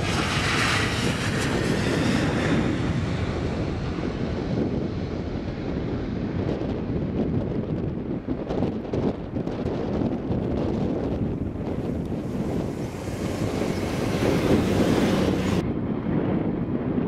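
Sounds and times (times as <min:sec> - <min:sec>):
jet engines running: 0:00.0 - 0:06.8, 0:11.0 - 0:16.3
wind buffeting microphone: 0:00.0 - 0:17.0.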